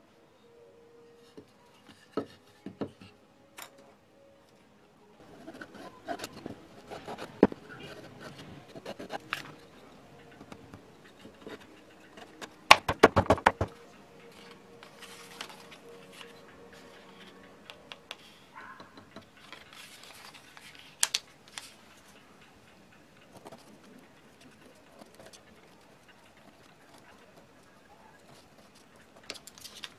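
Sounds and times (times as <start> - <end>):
sharp wooden knocks: 12.7 - 13.8.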